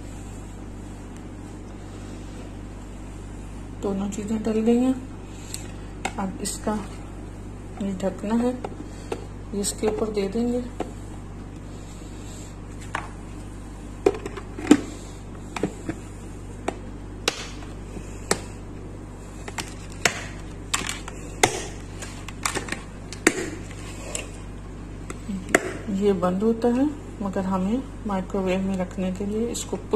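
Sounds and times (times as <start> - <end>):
steady low hum: 0.0 - 29.9.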